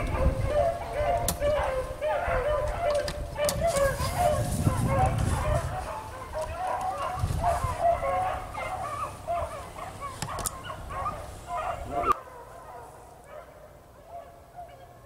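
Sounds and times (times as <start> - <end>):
hounds baying in chorus: 0.0 - 15.0.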